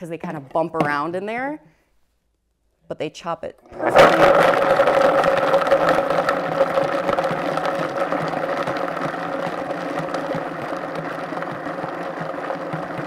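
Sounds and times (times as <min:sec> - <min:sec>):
blender motor hum: 0:03.7 - 0:13.0.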